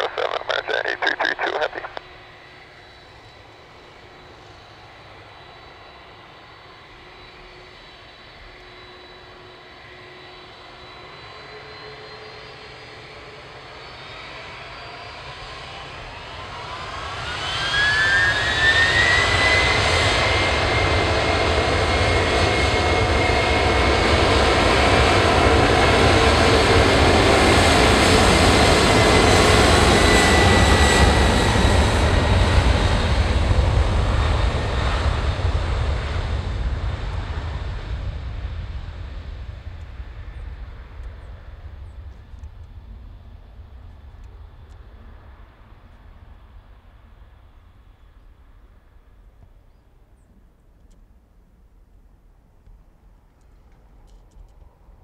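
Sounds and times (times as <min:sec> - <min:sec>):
jet engines spooling up: 0:00.0 - 0:03.6.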